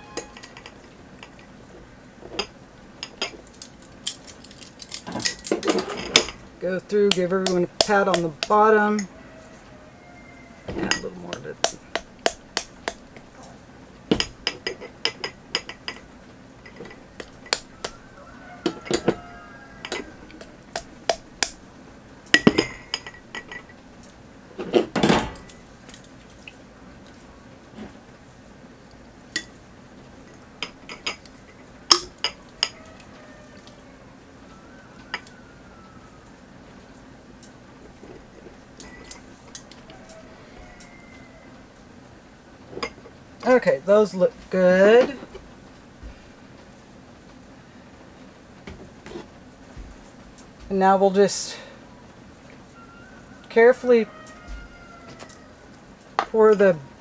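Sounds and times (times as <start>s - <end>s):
glass jars clinking: 0.0s - 1.5s, 22.4s - 23.8s
metal tongs tapping pot and jars: 0.0s - 1.5s, 2.3s - 9.1s, 10.8s - 13.5s, 14.1s - 18.0s, 19.8s - 21.6s, 30.3s - 33.7s
quiet background hum: 0.0s - 57.0s
glass jars clattering: 14.1s - 17.6s, 22.4s - 23.8s.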